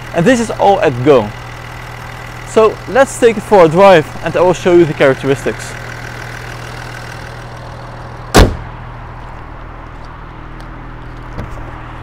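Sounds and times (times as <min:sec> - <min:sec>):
car engine idling: 0:00.0 - 0:12.0
car bonnet slammed shut: 0:08.3 - 0:08.7.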